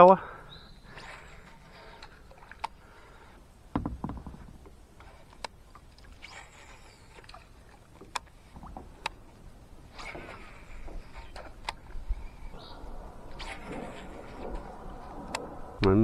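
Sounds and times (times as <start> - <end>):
heavy thump: 3.7 - 4.6
paddle swishing through water: 4.4 - 15.8.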